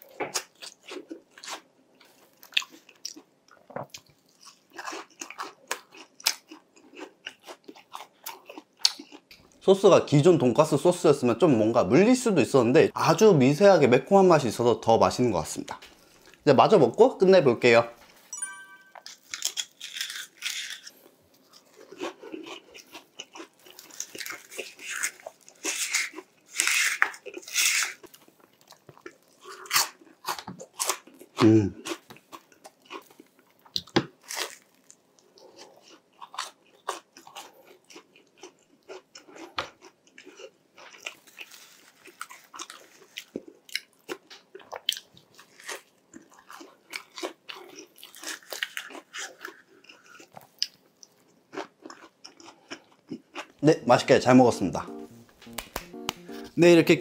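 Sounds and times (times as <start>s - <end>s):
chewing: 0.0s - 9.6s, 19.1s - 53.6s
crunching bites of fried food: 3.9s - 9.5s, 19.2s - 53.6s.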